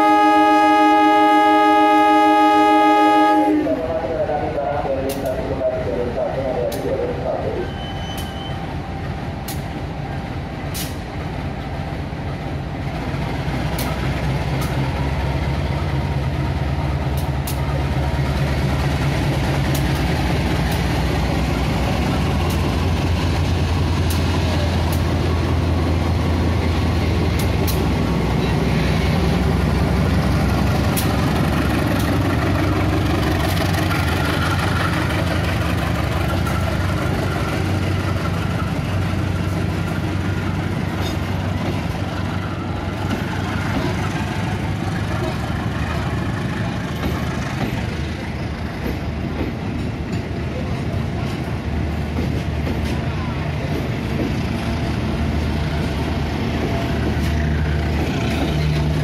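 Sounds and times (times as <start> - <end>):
diesel locomotive engine drone: 0.0 - 59.0
scattered clicks: 5.1 - 5.4.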